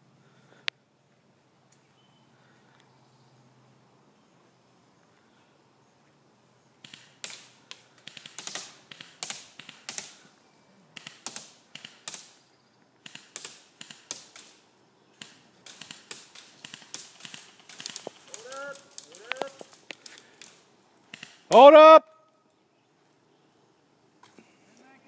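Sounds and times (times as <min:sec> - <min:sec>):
sharp clicks and snaps: 0:06.8 - 0:10.2, 0:11.0 - 0:12.4, 0:13.0 - 0:14.6, 0:15.2 - 0:21.6.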